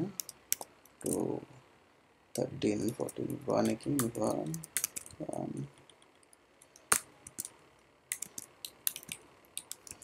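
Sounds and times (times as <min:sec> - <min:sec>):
computer keyboard tapping: 0:00.2 - 0:01.2, 0:02.8 - 0:10.0.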